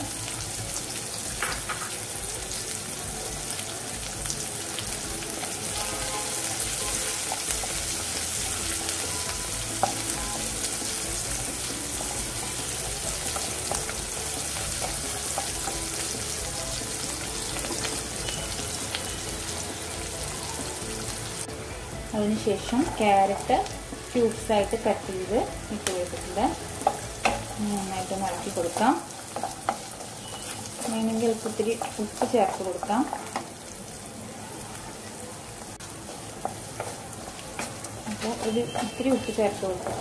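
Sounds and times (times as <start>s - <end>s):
onions sizzling in hot oil: 0.0s - 40.0s
wooden spatula scraping pan: 37.6s - 40.0s.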